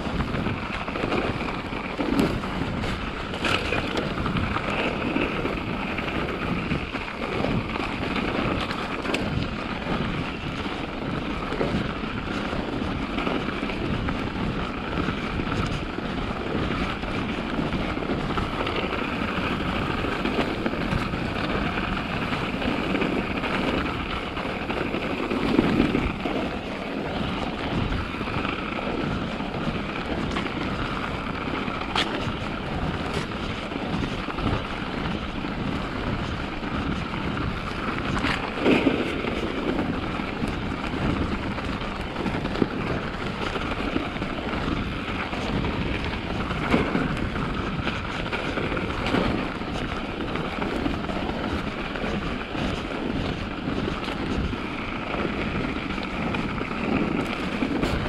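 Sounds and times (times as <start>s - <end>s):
bike rattling and knocking: 0.0s - 58.0s
bike tyre noise: 0.0s - 58.0s
wind rushing on microphone: 0.0s - 58.0s.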